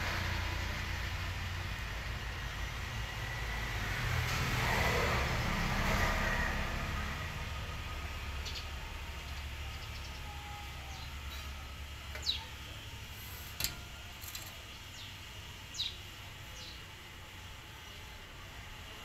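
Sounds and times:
traffic rumbling: 0.0 - 19.0
small birds chirping: 8.3 - 13.1, 14.6 - 16.9.

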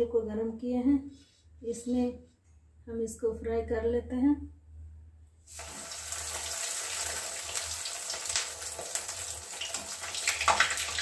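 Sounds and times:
food sizzling in hot oil: 5.5 - 11.0.

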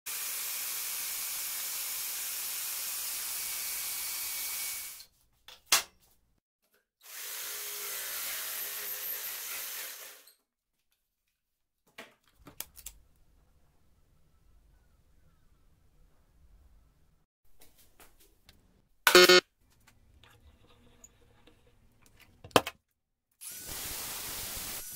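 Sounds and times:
jigsaw buzzing: 0.1 - 5.0, 7.0 - 10.3
jigsaw cutting wood: 0.1 - 5.0, 7.0 - 10.3.

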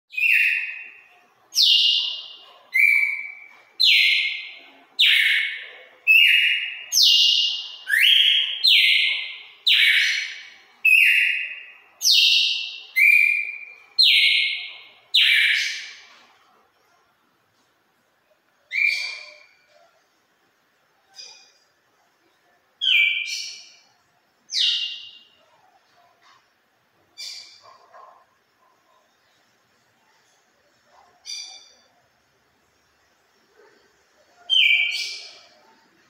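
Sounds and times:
bird whistling song: 0.1 - 1.0, 1.6 - 16.0, 18.7 - 19.6, 22.8 - 23.8, 34.5 - 35.4.

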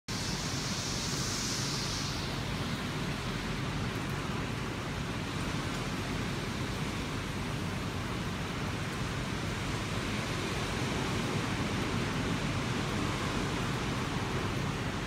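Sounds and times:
high bright hiss: 0.1 - 3.1
heavy rain on water and paving: 0.1 - 15.0.

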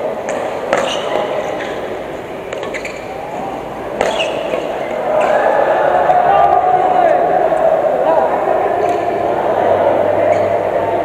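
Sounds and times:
background voices: 0.0 - 11.0
racket hitting shuttlecock: 0.2 - 5.5, 8.8 - 9.2, 10.2 - 10.7.

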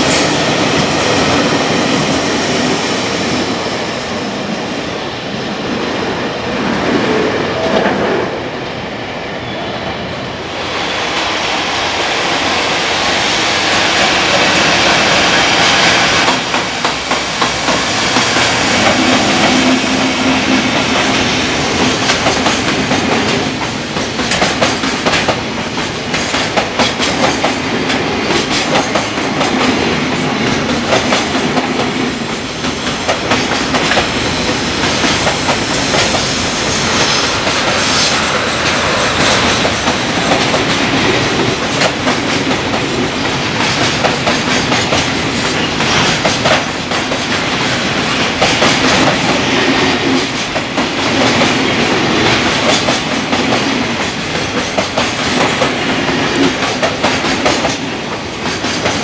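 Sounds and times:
train wheels clattering over rail joints: 13.9 - 36.3, 37.4 - 59.0.

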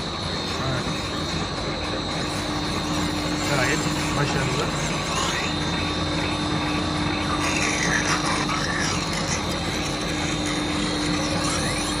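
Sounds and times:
motor humming: 0.0 - 12.0
thin high whine: 0.0 - 12.0
knife scraping on grinding stone: 7.4 - 12.0.

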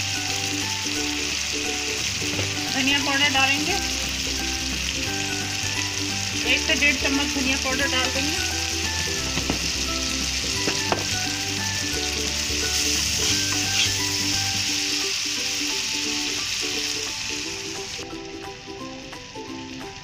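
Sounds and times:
sauce sizzling in hot oil: 0.0 - 20.0
metal spoon stirring in pan: 12.8 - 14.2.

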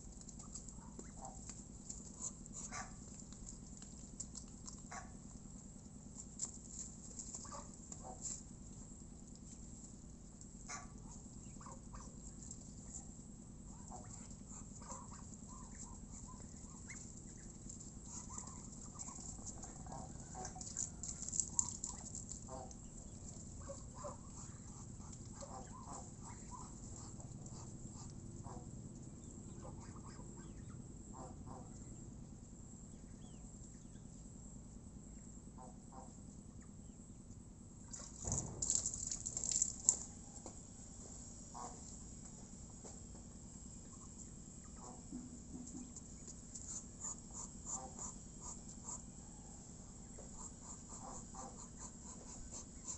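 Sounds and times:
geese and ducks pecking and murmuring: 0.0 - 40.6, 41.3 - 52.9
flurry of bird noise: 10.5 - 40.4, 43.7 - 45.1.

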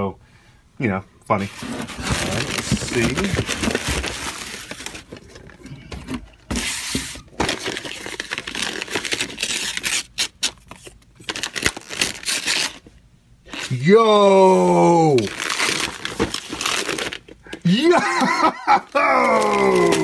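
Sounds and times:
cardboard rustling and knocking: 1.6 - 7.6.

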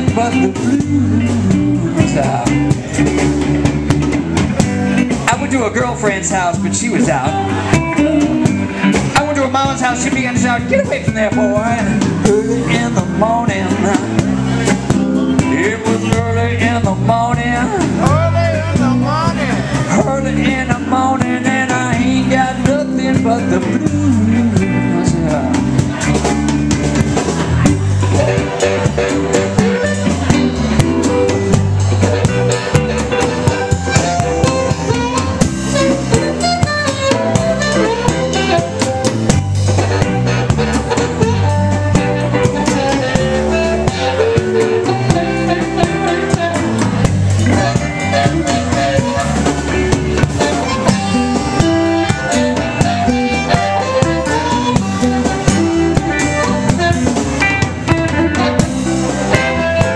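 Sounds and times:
drum kit steady beat: 0.0 - 59.9
electric bass: 0.0 - 59.9
electric guitar: 0.0 - 59.9
harmonica solo: 28.1 - 59.9.

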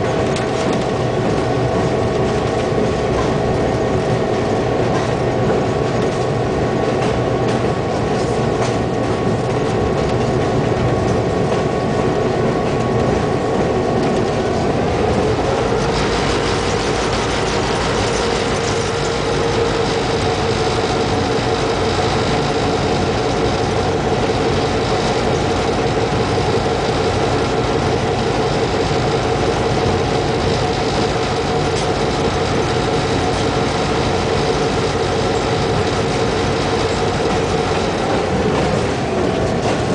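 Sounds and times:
diesel locomotive engine running: 0.0 - 39.9
train rumbling along track: 0.0 - 39.9.

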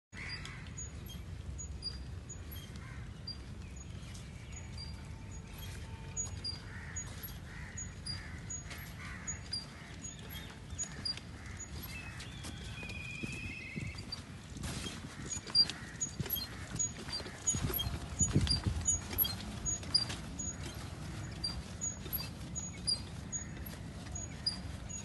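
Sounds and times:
crows cawing: 0.2 - 1.0, 2.6 - 3.5, 6.2 - 12.6, 15.0 - 22.2, 22.8 - 24.9
faint high chirp: 10.2 - 14.3.

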